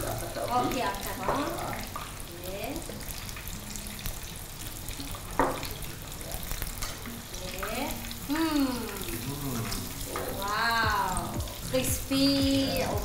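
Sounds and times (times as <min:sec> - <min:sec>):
chicken frying in hot oil: 0:00.0 - 0:13.0
oil popping: 0:00.0 - 0:13.0.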